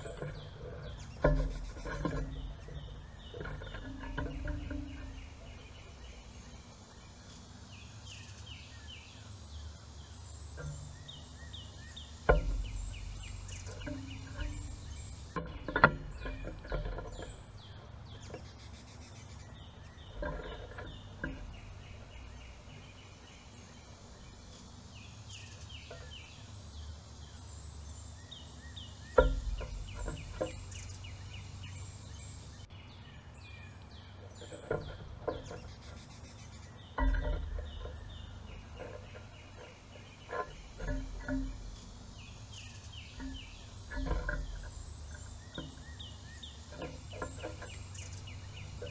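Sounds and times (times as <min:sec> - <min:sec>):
songbirds chirping: 0:00.0 - 0:48.9.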